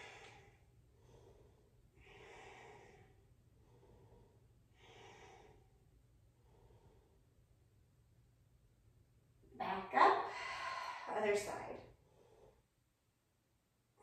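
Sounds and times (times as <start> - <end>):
woman breathing softly: 0.0 - 7.5, 10.3 - 12.8.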